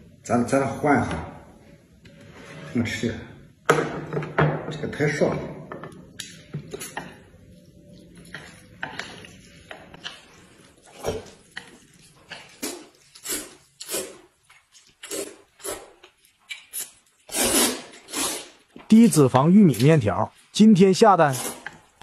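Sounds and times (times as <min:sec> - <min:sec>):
person slurping noodles: 0:12.3 - 0:14.3, 0:15.0 - 0:16.0, 0:16.7 - 0:18.7, 0:21.3 - 0:22.0.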